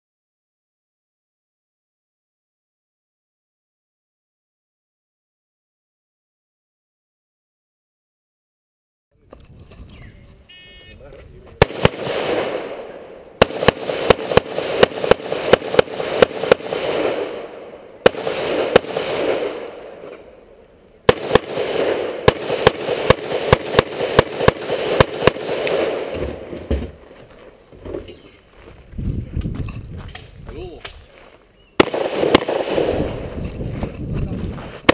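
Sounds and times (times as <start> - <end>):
rapid gunshots with echo: 11.6 - 20.2, 21.1 - 26.5, 31.8 - 33.4.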